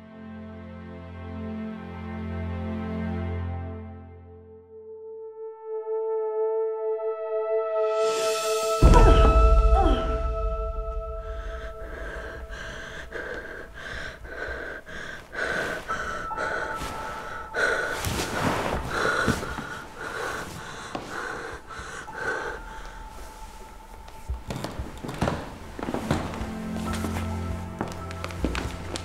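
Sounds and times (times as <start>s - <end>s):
woman gasping for breath: 8.9s - 23.6s.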